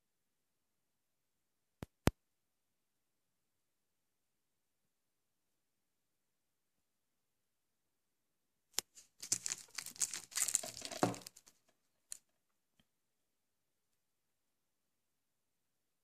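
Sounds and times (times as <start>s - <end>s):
cellophane wrap crinkling: 8.8s - 12.2s.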